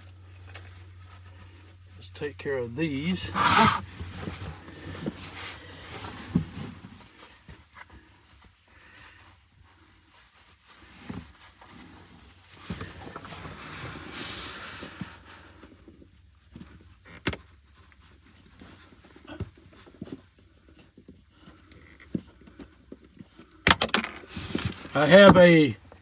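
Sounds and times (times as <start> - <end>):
wires rustling: 2.7 - 7.5.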